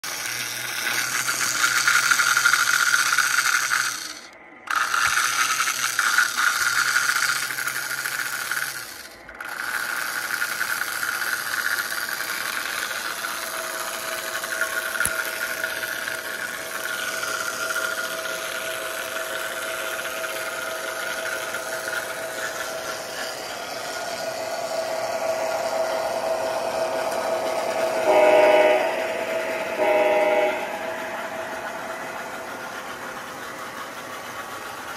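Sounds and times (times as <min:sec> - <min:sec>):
locomotive motor whine: 0:00.0 - 0:34.9
model train car whirring and rattling: 0:00.0 - 0:34.9
electronic train horn: 0:24.0 - 0:33.0.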